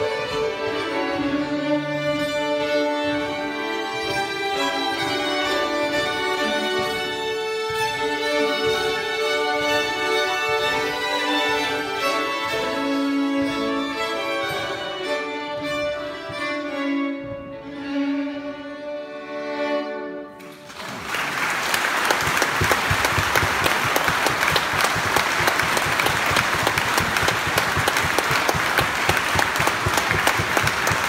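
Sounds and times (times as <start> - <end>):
fiddles and nyckelharpa playing: 0.0 - 20.4, 21.9 - 31.0
audience applause: 20.4 - 31.0.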